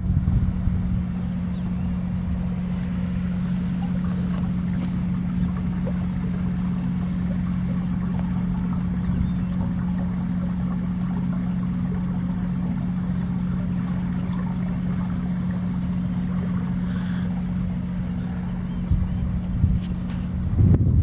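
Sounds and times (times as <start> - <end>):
motor humming: 0.0 - 21.0
stream trickling: 0.0 - 21.0.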